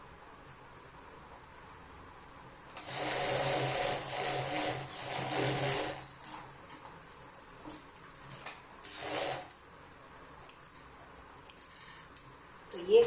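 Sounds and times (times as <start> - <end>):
sewing machine stitching: 2.8 - 6.5, 8.8 - 9.6.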